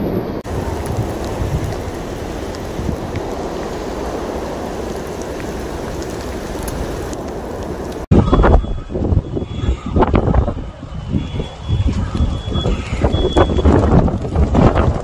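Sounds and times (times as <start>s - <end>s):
gusty low rumbling: 0.0s - 15.0s
faint drips: 0.4s - 8.1s
steady rain falling: 0.4s - 8.1s.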